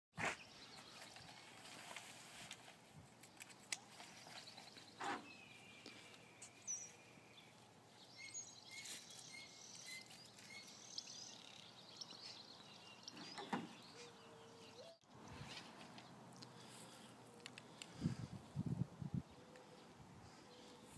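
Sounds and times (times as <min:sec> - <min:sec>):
faint outdoor ambience: 0:00.2 - 0:20.9
bird chirping: 0:03.3 - 0:18.1.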